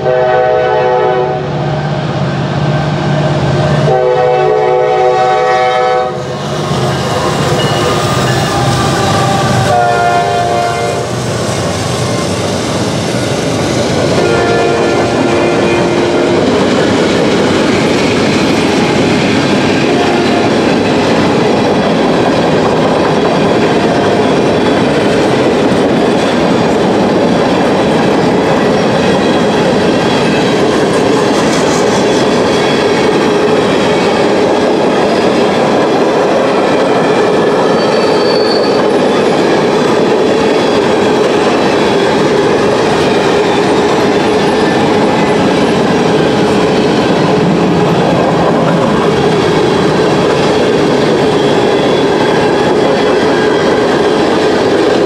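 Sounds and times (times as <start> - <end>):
steel wheels rumbling on rails: 0.0 - 55.0
high wheel squeal: 6.2 - 9.7, 37.6 - 39.2.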